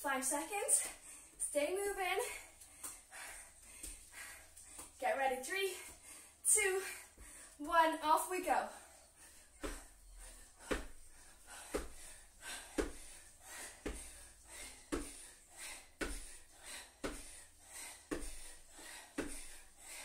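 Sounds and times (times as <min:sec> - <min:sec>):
heavy panting breaths: 0:00.7 - 0:05.0, 0:05.6 - 0:07.6, 0:08.5 - 0:20.0
trainers thudding on exercise mat: 0:10.6 - 0:11.0, 0:11.7 - 0:12.0, 0:12.7 - 0:13.1, 0:13.8 - 0:14.2, 0:19.2 - 0:19.5.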